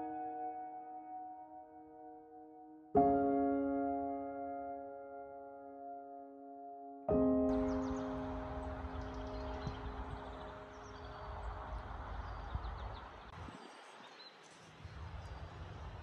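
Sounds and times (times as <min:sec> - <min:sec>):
held piano chord: 0:00.0 - 0:12.5
wind rumble on microphone: 0:07.5 - 0:16.0.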